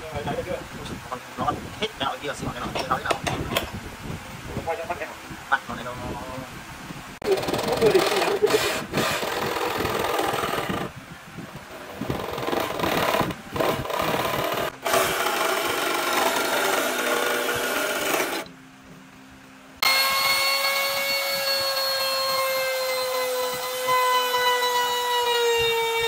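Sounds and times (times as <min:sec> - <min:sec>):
jigsaw cutting wood: 0:07.2 - 0:10.9, 0:11.8 - 0:18.5, 0:19.8 - 0:26.0.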